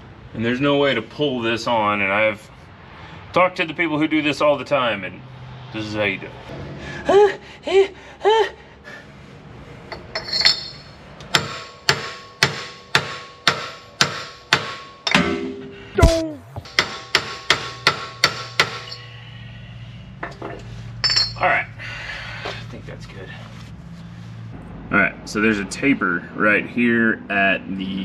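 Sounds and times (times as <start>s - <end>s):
hammer on metal with metallic ring: 10.1s - 15.9s, 16.7s - 19.1s.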